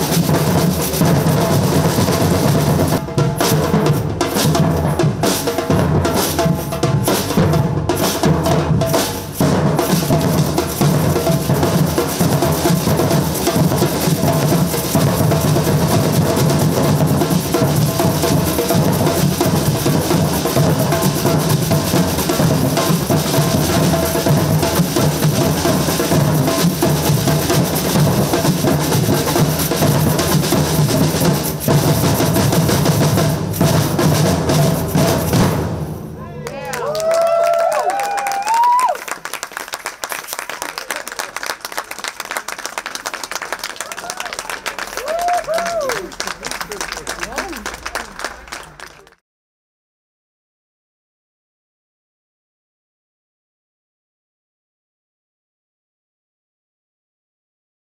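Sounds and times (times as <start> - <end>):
bass drums: 0.0 - 36.3
smaller drums: 0.0 - 39.0.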